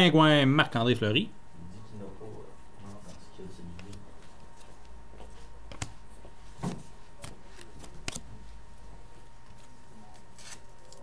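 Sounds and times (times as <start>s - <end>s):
steady low hum: 0.0s - 11.0s
cards clicking and tapping: 5.7s - 6.0s, 7.2s - 8.2s.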